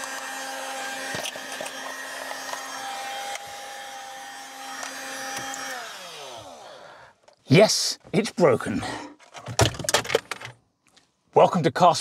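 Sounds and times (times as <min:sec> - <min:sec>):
air compressor motor whine: 0:00.0 - 0:06.8.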